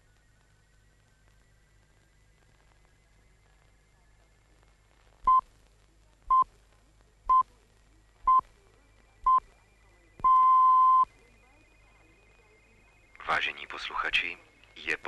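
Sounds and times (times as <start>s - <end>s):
radio time signal beeps: 10.2s - 13.8s.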